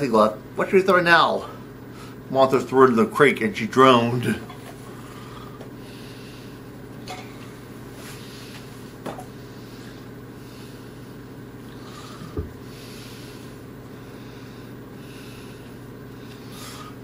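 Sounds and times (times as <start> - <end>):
low room hum: 0.0 - 17.0
dull thump: 12.3 - 12.6.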